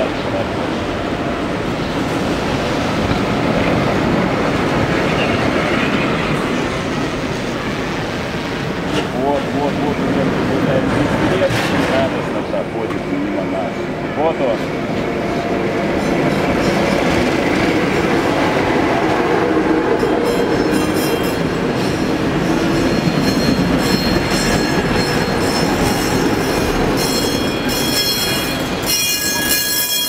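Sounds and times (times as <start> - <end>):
tram wheels rumbling on rails: 0.0 - 30.0
high-pitched wheel squeal: 27.0 - 30.0.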